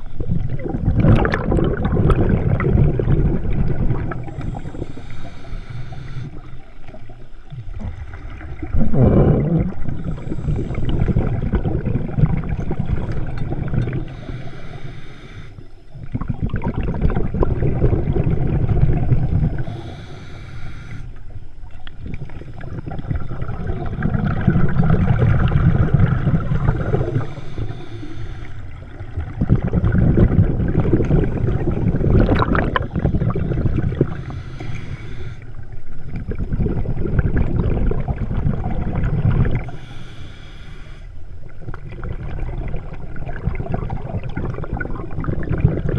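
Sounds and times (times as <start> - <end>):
exhaled bubbles rumbling underwater: 0.0 - 45.9
hissing inhales through regulator: 4.2 - 6.8, 9.7 - 11.3, 13.9 - 16.0, 19.4 - 21.3, 26.5 - 29.0, 32.6 - 35.8, 39.4 - 41.2.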